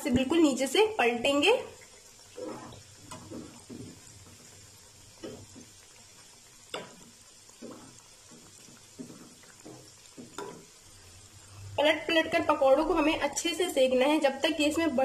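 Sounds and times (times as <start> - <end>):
food frying in oil: 0.0 - 15.0
spoon scraping and knocking pan: 2.3 - 11.0.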